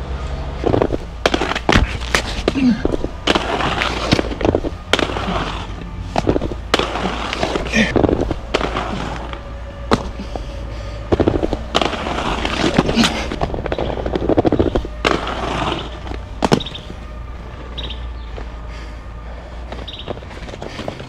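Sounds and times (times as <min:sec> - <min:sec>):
inline skates rolling on concrete: 0:00.1 - 0:21.0
skate wheels clacking on ground: 0:00.6 - 0:10.4, 0:11.1 - 0:16.9.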